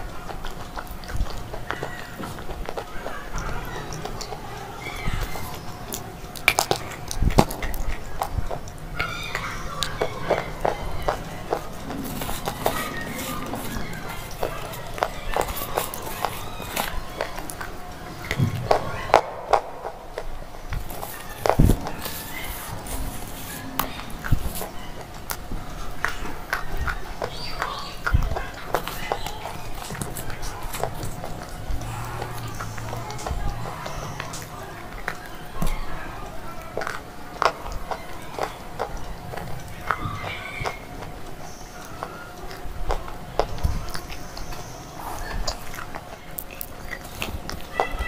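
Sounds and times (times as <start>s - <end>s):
crunching a slate pencil: 5.2s - 18.8s.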